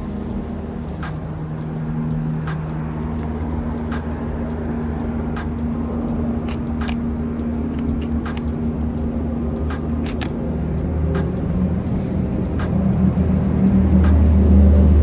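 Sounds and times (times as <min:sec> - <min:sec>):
city street ambience: 0:00.0 - 0:15.0
motor vehicle idling: 0:00.0 - 0:15.0
sharp clicks of camera handling: 0:06.4 - 0:07.1, 0:07.7 - 0:08.6, 0:10.0 - 0:10.4.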